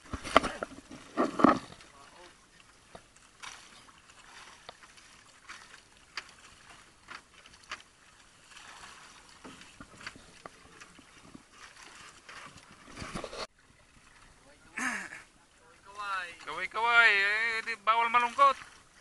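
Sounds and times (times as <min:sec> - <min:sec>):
water slapping against boat hull: 0:00.0 - 0:14.6.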